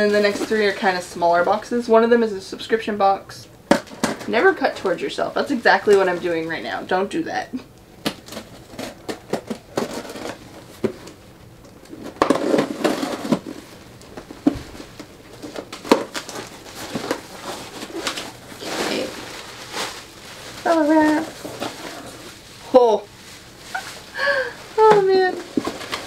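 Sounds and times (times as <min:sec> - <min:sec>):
packaging rustling: 0:08.0 - 0:26.0.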